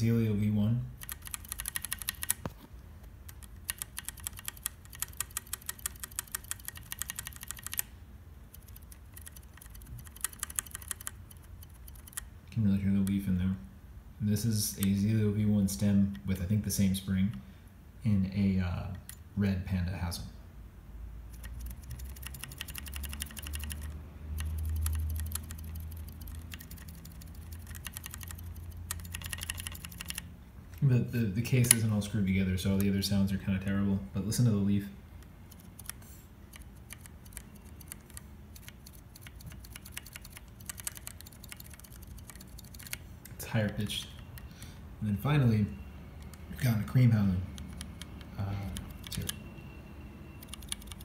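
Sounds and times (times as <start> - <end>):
keyboard switch clicking: 1.0 - 2.5, 3.3 - 7.9, 21.4 - 30.2.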